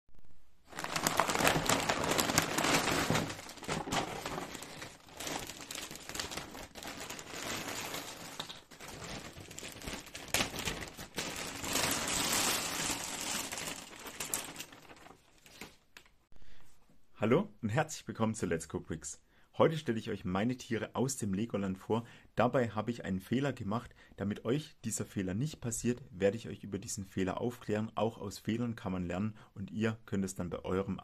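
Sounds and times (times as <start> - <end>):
plastic bags crinkling: 0.6 - 15.8
plastic figures clattering: 0.7 - 15.7.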